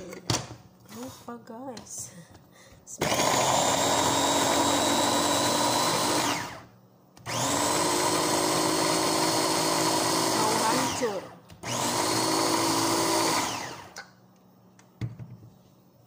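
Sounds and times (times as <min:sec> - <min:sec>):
electric food chopper running: 0:03.0 - 0:14.1.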